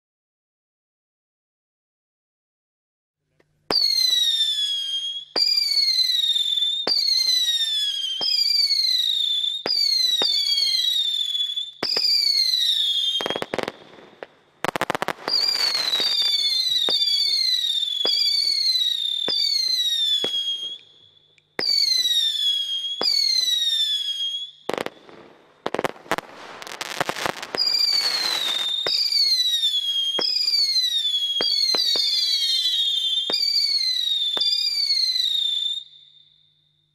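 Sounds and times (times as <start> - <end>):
falling whistle: 3.7 - 13.7, 15.2 - 25.0, 26.8 - 36.8
firework shots cracking: 6.9 - 9.0, 9.6 - 11.1, 11.8 - 20.8, 21.6 - 24.0, 24.7 - 35.1
dense firework crackling: 11.8 - 20.8, 24.7 - 34.8.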